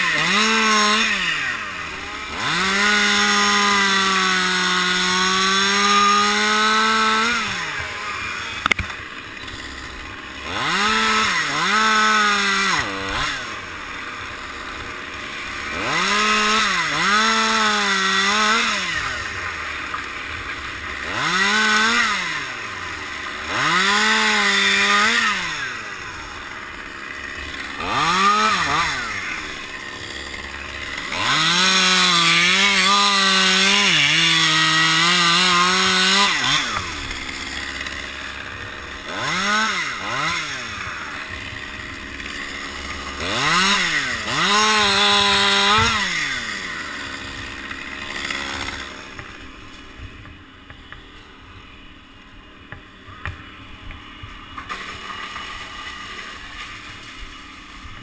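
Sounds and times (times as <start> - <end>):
chainsaw revving and cutting wood: 0.0 - 58.0.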